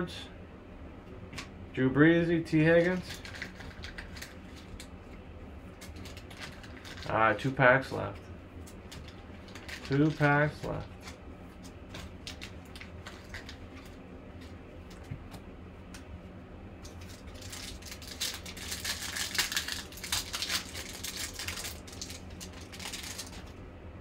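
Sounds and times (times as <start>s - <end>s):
cards clicking and rustling: 2.8s - 4.9s, 5.8s - 7.2s, 8.7s - 15.2s, 16.8s - 23.6s
foil wrapper crinkling and tearing: 2.8s - 4.9s, 5.8s - 7.2s, 8.9s - 11.2s, 11.8s - 14.0s, 16.8s - 23.6s.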